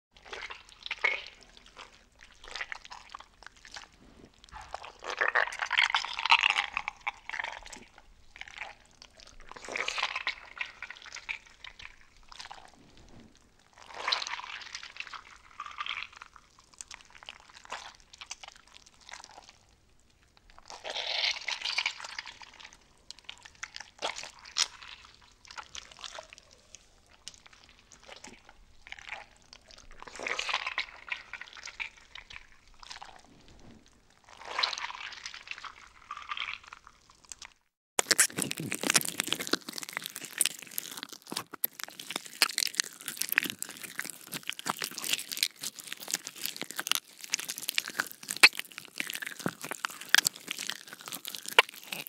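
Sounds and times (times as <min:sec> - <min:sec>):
slime squishing and popping: 0:36.5 - 0:52.0.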